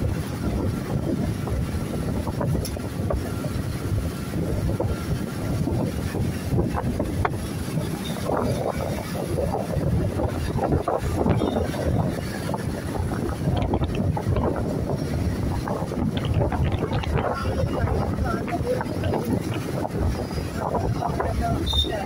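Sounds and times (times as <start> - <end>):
motorcycles: 0.0 - 22.0
road traffic rumble: 0.0 - 22.0
wind buffeting microphone: 0.0 - 22.0.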